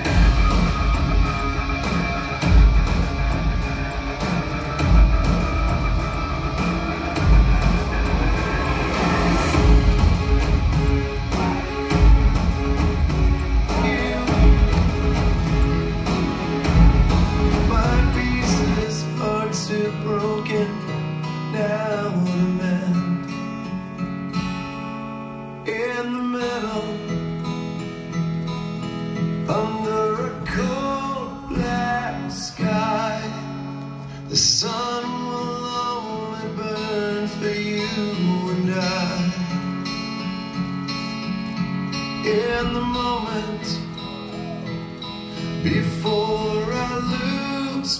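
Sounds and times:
person singing: 0.0s - 23.5s, 29.5s - 40.0s, 42.0s - 47.9s
strummed acoustic guitar: 0.0s - 47.9s.

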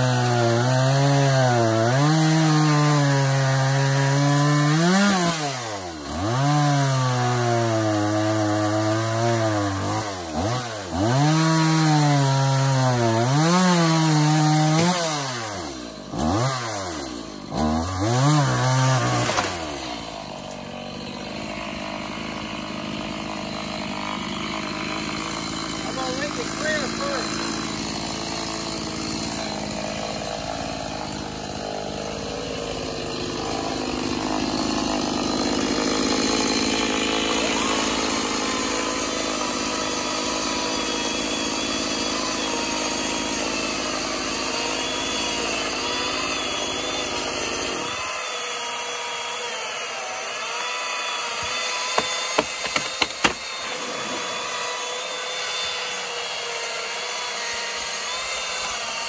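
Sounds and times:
chainsaw cutting wood: 0.0s - 59.0s
sharp knocks: 51.9s - 53.6s.

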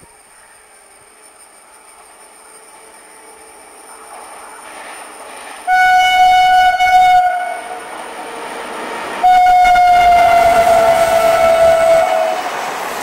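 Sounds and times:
train rumble: 0.0s - 13.0s
locomotive horn blasts: 5.7s - 7.8s, 9.2s - 12.4s.

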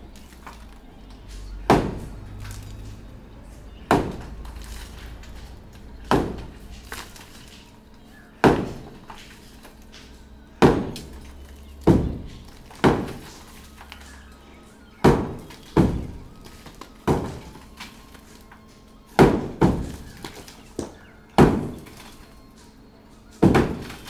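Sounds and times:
sledgehammer striking concrete: 1.7s - 2.1s, 3.9s - 4.3s, 6.0s - 6.6s, 8.4s - 9.0s, 10.6s - 13.4s, 15.0s - 16.2s, 17.0s - 17.5s, 19.2s - 20.4s, 21.4s - 22.1s, 23.4s - 24.0s.

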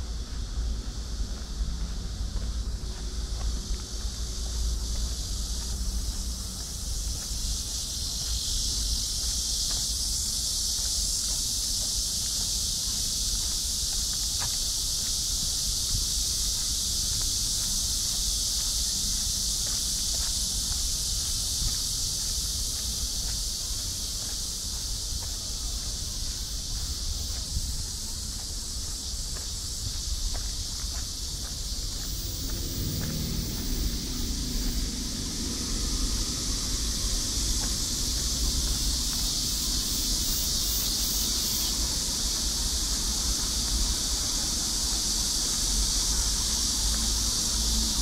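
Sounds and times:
high-pitched insect chorus: 0.0s - 48.0s
low rumble: 31.6s - 39.0s.

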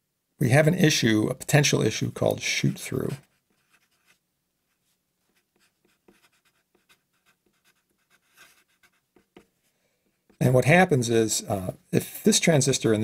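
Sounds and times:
marker writing on paper: 3.2s - 9.5s.

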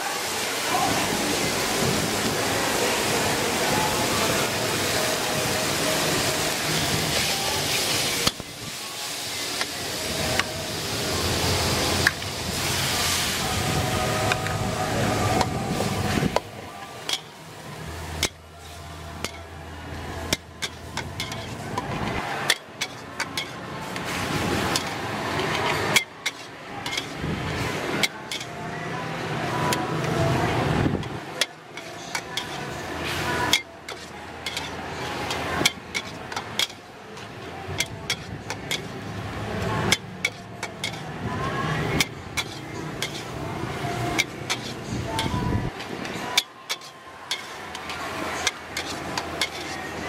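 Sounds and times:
food sizzling: 0.0s - 50.0s
metal spatula clanking on wok: 17.0s - 17.3s, 18.2s - 18.5s, 19.2s - 19.5s, 20.3s - 21.8s, 22.4s - 23.6s, 24.7s - 27.2s, 28.0s - 28.6s, 31.0s - 32.7s, 33.4s - 36.9s, 37.7s - 39.0s, 39.8s - 41.1s, 41.9s - 43.4s, 44.1s - 45.5s, 46.3s - 49.8s.

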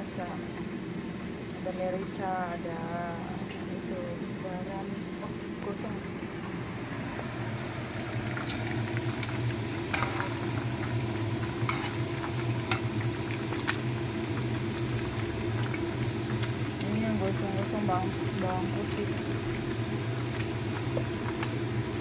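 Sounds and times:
steady low hum: 0.0s - 22.0s
hot oil sizzling: 6.7s - 22.0s
spatula stirring in a wok: 9.9s - 12.9s.

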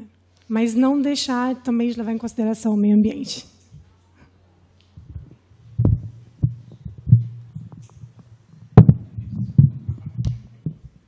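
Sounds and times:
microphone handling thumps: 4.9s - 11.0s.

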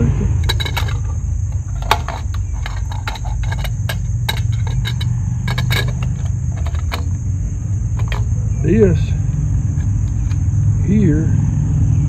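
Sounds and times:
crickets chirring: 0.0s - 12.0s
wire clicking and scraping on metal: 0.4s - 8.4s, 9.2s - 10.5s.

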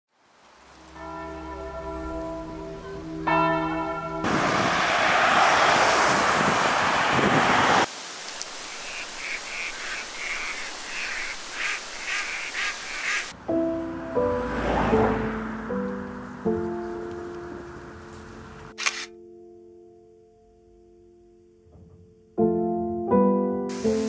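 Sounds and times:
church bell ringing: 0.8s - 4.4s
loud rushing noise: 4.2s - 8.8s
short high repeated calls: 8.5s - 13.3s.

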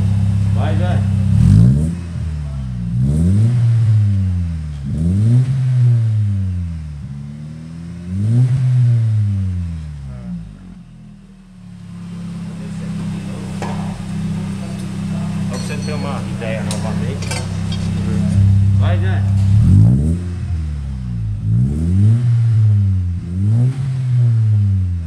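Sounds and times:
engine idling: 0.0s - 3.0s, 10.1s - 21.4s
car engine revving: 0.0s - 25.0s.

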